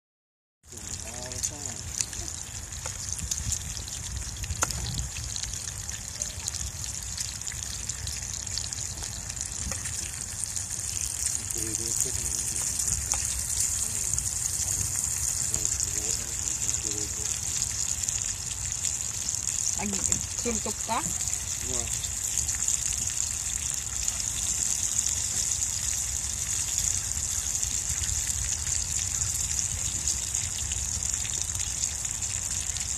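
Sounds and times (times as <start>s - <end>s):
meat sizzling in a pan: 0.7s - 32.9s
low rumble: 1.6s - 18.6s.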